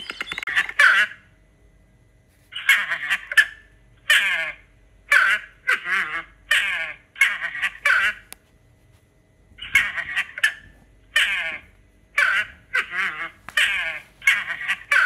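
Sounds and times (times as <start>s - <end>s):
animal harsh calls: 2.5s - 8.3s, 9.6s - 15.0s.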